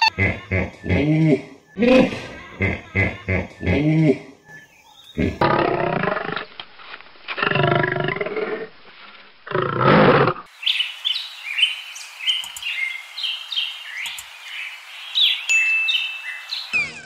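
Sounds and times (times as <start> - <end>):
songbird chirping: 0.0 - 5.5, 10.4 - 17.0
lion roaring: 5.2 - 6.5, 9.5 - 10.5.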